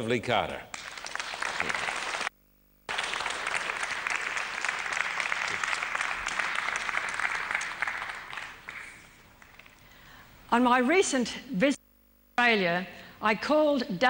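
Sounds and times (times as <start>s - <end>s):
audience applauding: 0.7s - 2.3s, 2.9s - 9.9s.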